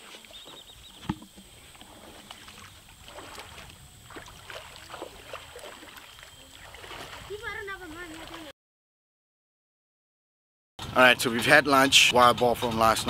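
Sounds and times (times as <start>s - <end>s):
light water splashes: 0.0s - 8.5s
low wind rumble: 0.7s - 5.9s
small knocks: 1.0s - 1.5s.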